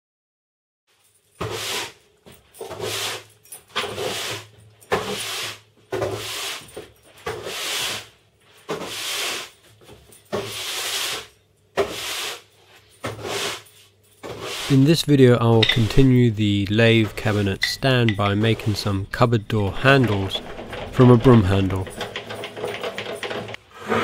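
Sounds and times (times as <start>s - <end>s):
broom sweeping the floor: 1.4s - 15.1s.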